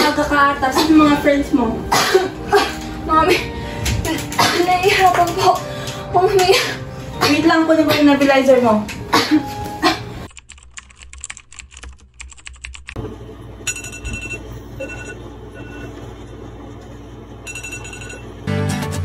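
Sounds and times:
rapid irregular clicks: 10.3s - 13.0s.

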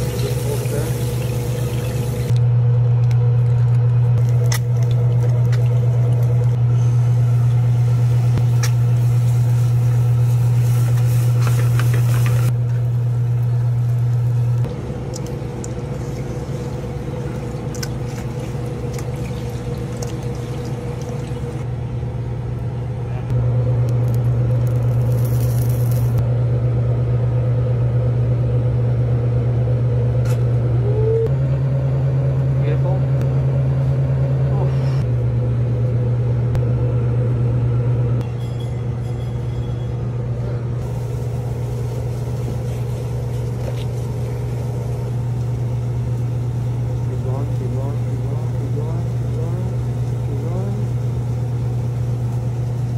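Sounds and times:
food sizzling: 0.0s - 2.4s, 4.4s - 21.6s, 40.8s - 52.9s
low hum of kitchen equipment: 0.0s - 52.9s.

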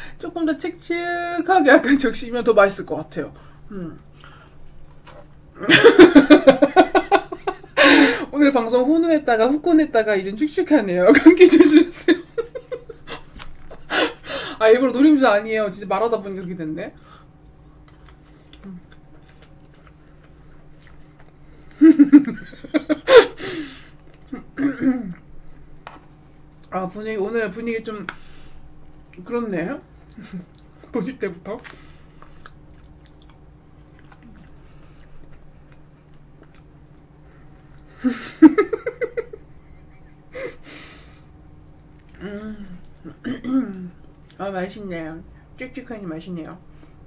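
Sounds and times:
person laughing: 5.6s - 8.3s, 11.1s - 14.4s, 21.7s - 23.7s, 38.0s - 40.6s
person chewing: 17.7s - 21.8s, 30.0s - 30.9s, 31.6s - 37.9s.

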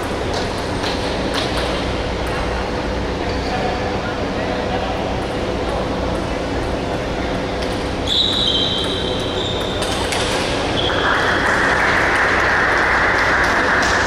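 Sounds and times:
table tennis balls clicking: 7.6s - 14.0s.

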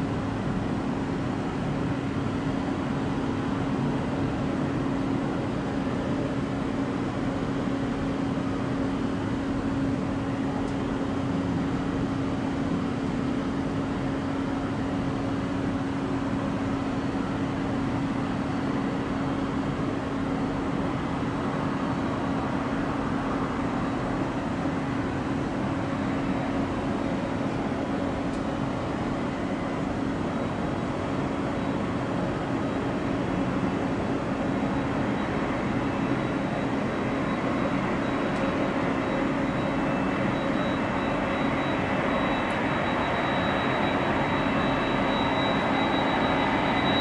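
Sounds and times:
constant low hum: 0.0s - 47.0s.

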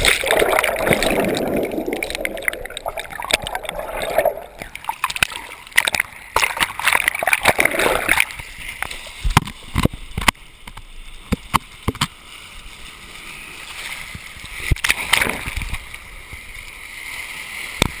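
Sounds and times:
sea water washing over rocks: 0.0s - 10.4s
sharp pops and knocks: 9.2s - 12.1s.

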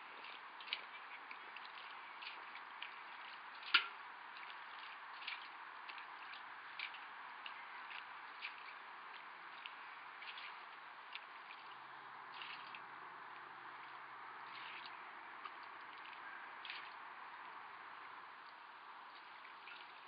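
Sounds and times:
water dripping and splashing: 0.0s - 20.0s.

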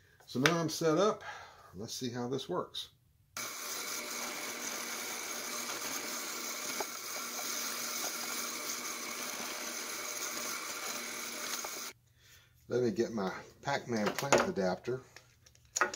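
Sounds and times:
drill press running: 3.4s - 11.9s.

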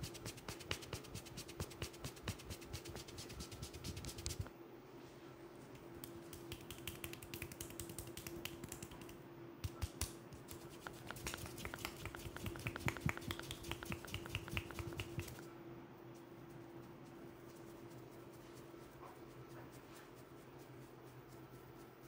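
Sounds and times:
hands patting on a head: 0.1s - 4.5s, 6.0s - 15.4s.

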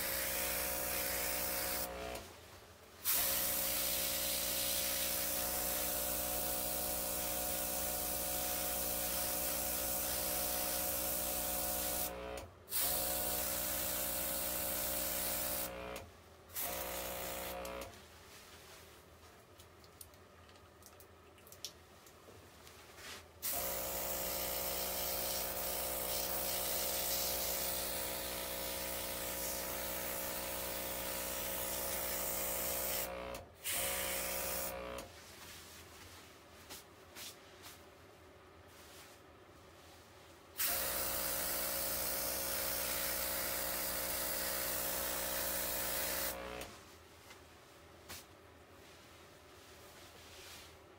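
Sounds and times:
small compressor humming: 0.0s - 2.3s, 3.1s - 18.0s, 23.4s - 35.1s, 40.6s - 46.7s
airbrush air hiss: 3.1s - 12.1s, 24.2s - 28.0s, 28.6s - 33.1s.

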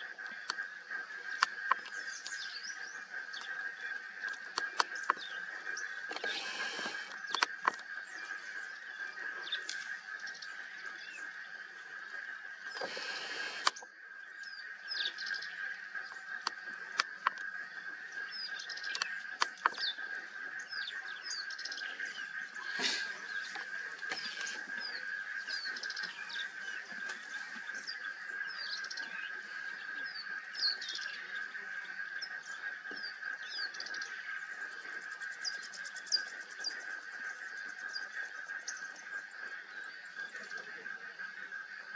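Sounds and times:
birds chirping: 0.0s - 41.9s
sharp clicks: 6.1s - 7.9s, 12.7s - 13.8s, 18.8s - 19.9s.

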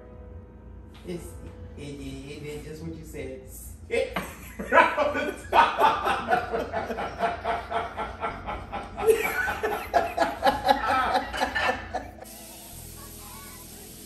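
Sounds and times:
woman laughing: 4.2s - 12.3s.

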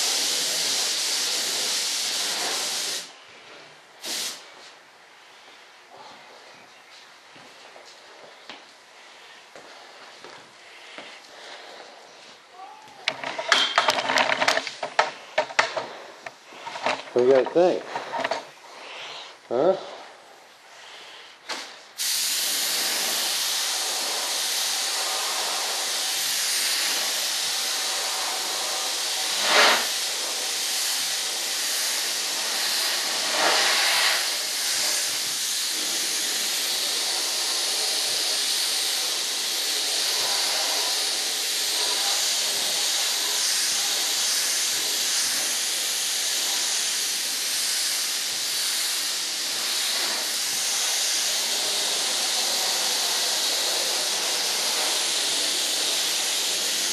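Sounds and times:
paint sprayer hissing: 0.0s - 4.7s, 21.5s - 56.9s.

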